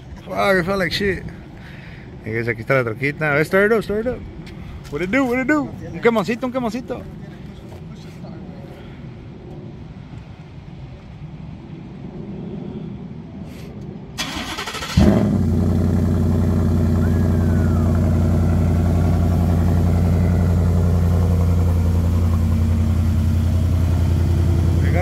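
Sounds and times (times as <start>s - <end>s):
engine starter cranking: 14.2s - 15.4s
engine revving then idling: 14.2s - 25.0s.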